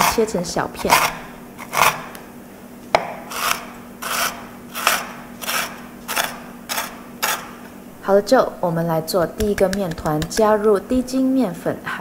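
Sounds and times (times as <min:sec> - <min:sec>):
knife chopping cookies on wood: 0:09.4 - 0:10.6.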